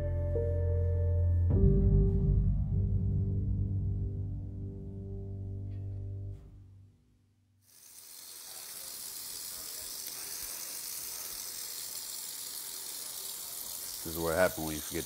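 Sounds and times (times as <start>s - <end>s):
background music: 0.0s - 6.4s
faucet running into sink: 7.7s - 15.0s.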